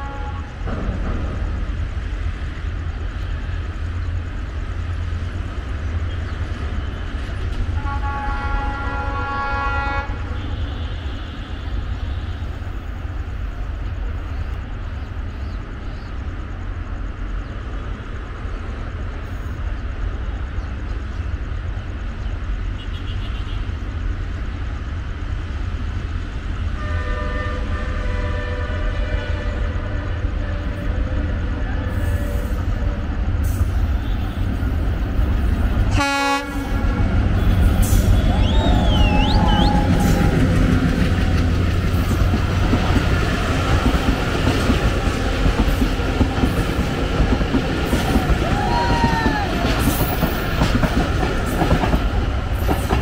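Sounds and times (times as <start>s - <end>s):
train horn blasts: 0.0s - 0.7s, 7.7s - 12.5s, 26.8s - 34.5s, 35.8s - 40.2s.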